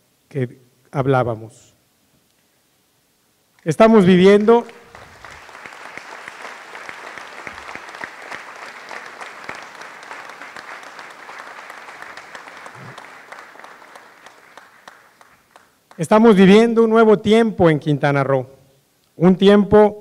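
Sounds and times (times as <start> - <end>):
audience applauding: 4.3 - 16.1.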